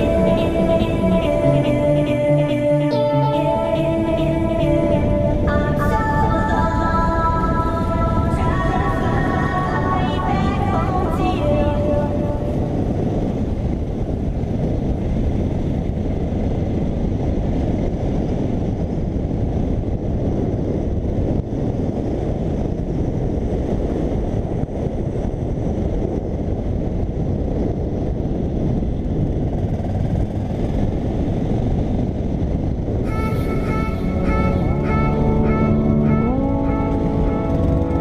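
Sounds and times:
music with plucked notes: 0.0 - 12.6, 33.1 - 38.0
wind rushing on helmet: 3.4 - 38.0.

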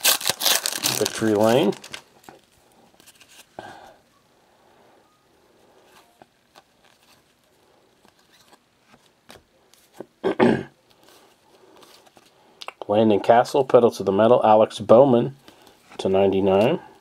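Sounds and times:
trading cards clicking and rustling: 0.0 - 2.1.

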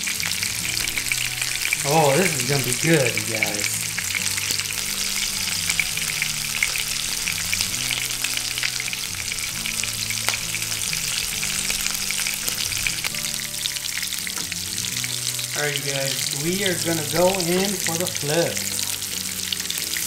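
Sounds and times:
fat spattering and crackling: 0.0 - 20.0
meat sizzling in frying pan: 0.0 - 20.0.

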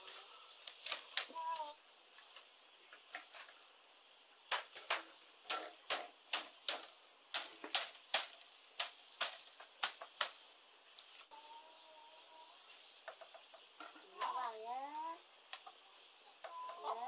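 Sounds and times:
machete tapping bamboo strips: 4.5 - 10.4.

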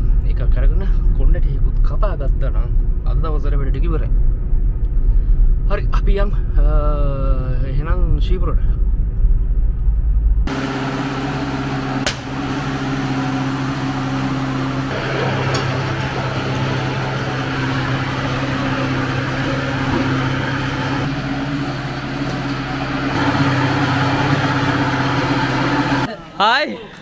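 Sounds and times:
tyre-changing machine humming: 10.5 - 26.2.

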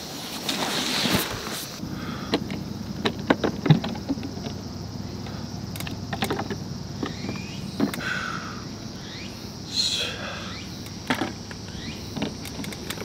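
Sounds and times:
rustle: 0.0 - 13.0
light clicks and knocks: 2.3 - 4.6, 5.2 - 8.0, 10.8 - 13.0.

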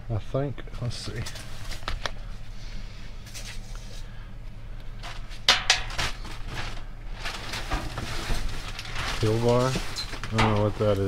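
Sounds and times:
steady low hum: 0.0 - 11.0
objects knocking together: 5.0 - 10.8.

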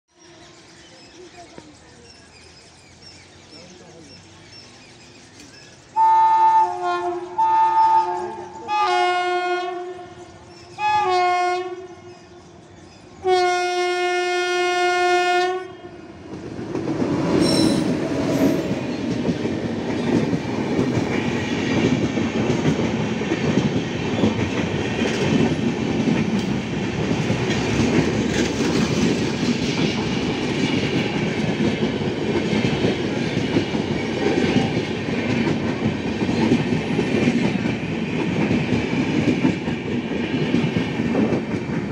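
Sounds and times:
train passing with rumble: 0.2 - 41.9
train horn blasts: 6.0 - 10.2, 10.8 - 12.2, 13.2 - 16.0
wheels clacking on rails: 16.2 - 41.9.

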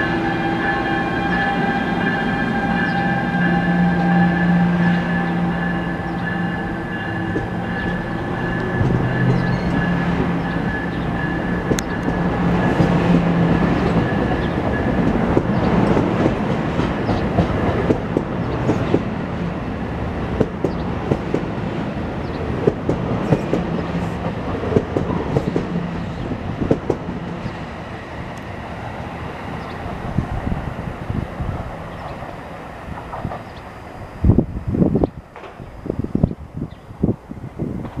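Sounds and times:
passenger coaches rolling past: 0.0 - 38.0
train wheels clicking over rail joints: 6.7 - 19.1, 20.3 - 21.6, 22.2 - 27.2, 35.3 - 35.7.

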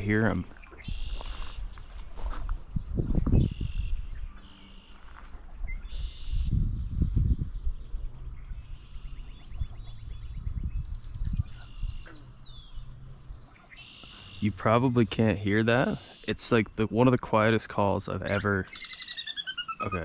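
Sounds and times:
low rumbles on microphone: 0.0 - 13.6
marsh birdsong: 0.0 - 20.0
fast dry bird trill: 18.2 - 20.0.

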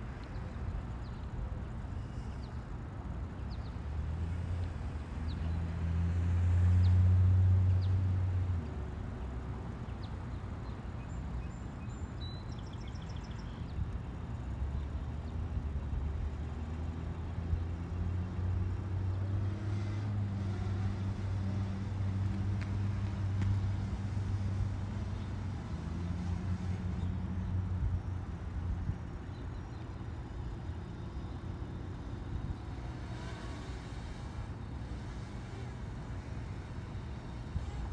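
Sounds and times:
low mechanical hum: 0.0 - 37.9
outdoor noise: 0.0 - 37.9.

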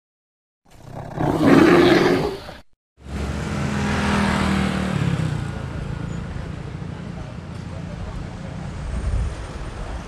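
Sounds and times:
growling roar sound effect: 0.7 - 2.6
street traffic rumble: 0.7 - 10.0
motorbike engines running: 3.0 - 10.0.

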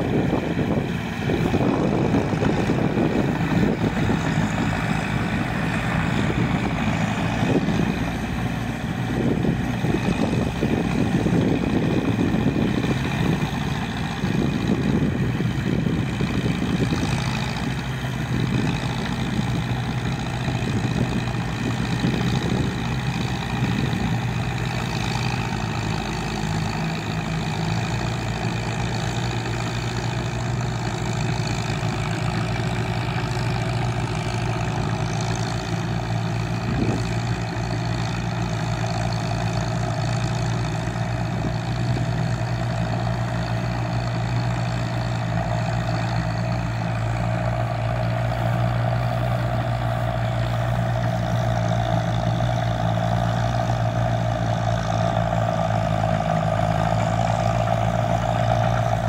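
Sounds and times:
tractor engine running: 0.0 - 59.0.

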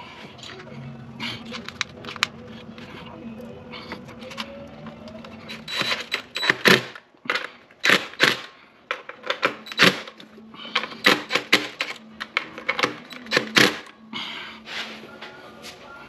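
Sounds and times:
impact driver hammering: 7.8 - 8.5, 11.0 - 11.8.

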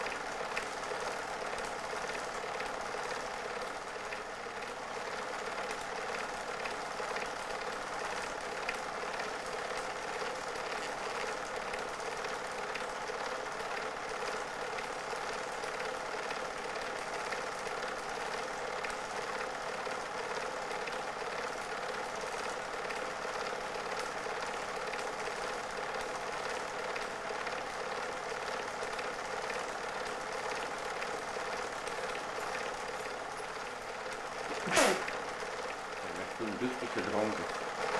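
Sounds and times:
film projector whirring: 0.0 - 37.9.

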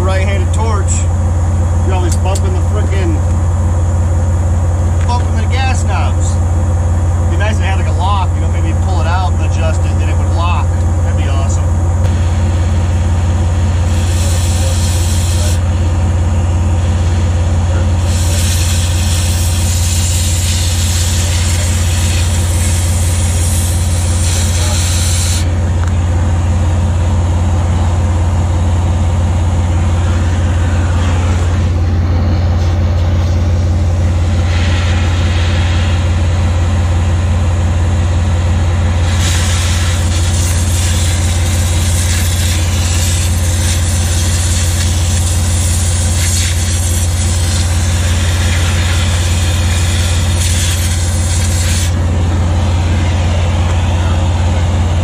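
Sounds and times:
engine idling drone: 0.0 - 55.0
cutting torch hissing: 13.7 - 15.8, 17.9 - 25.6, 39.0 - 52.0.

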